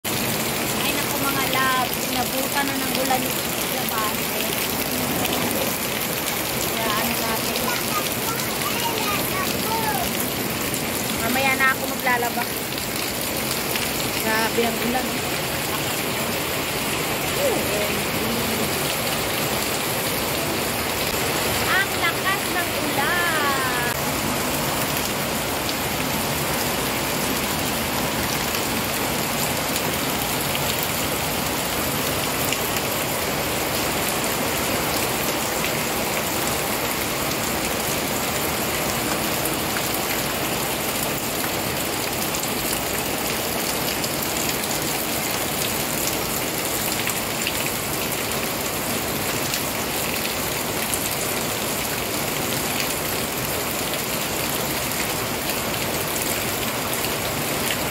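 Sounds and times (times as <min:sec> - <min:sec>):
heavy rain on concrete: 0:00.0 - 0:57.9.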